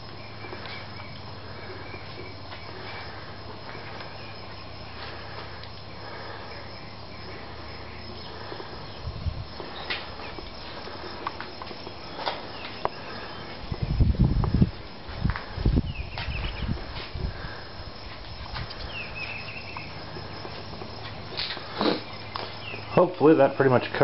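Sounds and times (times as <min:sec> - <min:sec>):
steady low hum: 0:00.0 - 0:23.8
faint insect chirping: 0:00.0 - 0:24.0
heavy low thumps: 0:13.6 - 0:18.7.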